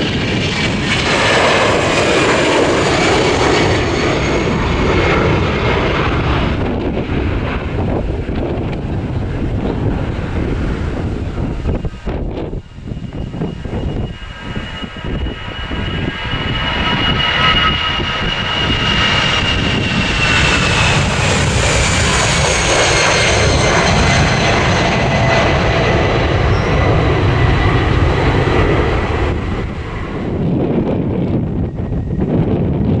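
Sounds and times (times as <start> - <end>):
jet taking off: 0.0 - 33.0
high fan whine: 28.9 - 33.0.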